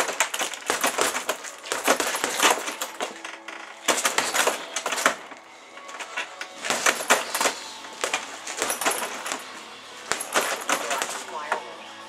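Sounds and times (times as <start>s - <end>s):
gloves punching heavy bag: 0.0s - 11.4s
chain jingling: 5.9s - 11.3s.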